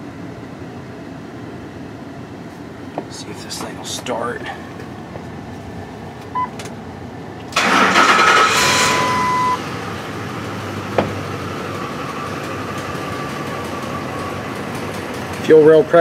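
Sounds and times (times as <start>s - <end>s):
engine cranking and idling weakly: 7.4s - 16.0s
short beep: 8.5s - 9.6s.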